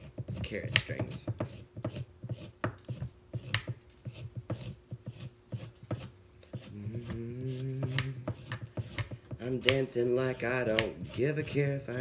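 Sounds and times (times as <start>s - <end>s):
vegetable peeler scraping carrot: 0.0s - 12.0s
low steady hummed note: 3.3s - 12.0s.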